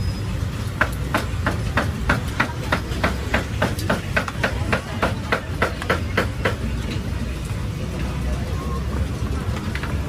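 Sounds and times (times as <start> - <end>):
cleaver chopping meat: 0.8 - 6.7.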